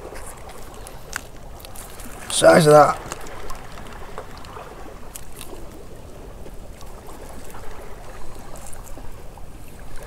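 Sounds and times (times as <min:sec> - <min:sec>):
seawater lapping among rocks: 0:00.0 - 0:10.0.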